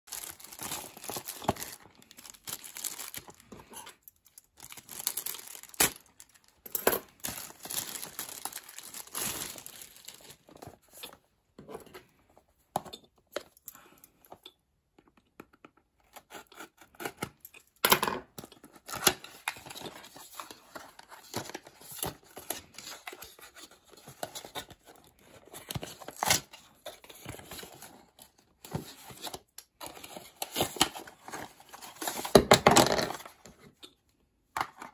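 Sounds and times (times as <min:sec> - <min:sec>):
plastic bag crinkling and tearing: 0:00.1 - 0:10.6.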